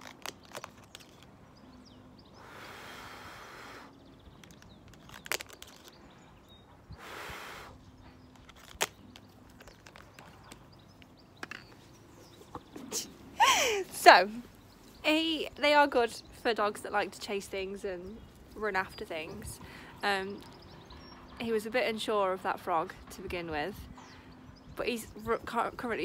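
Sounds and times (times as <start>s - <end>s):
breathy blowing: 2.4s - 4.1s, 6.9s - 8.2s.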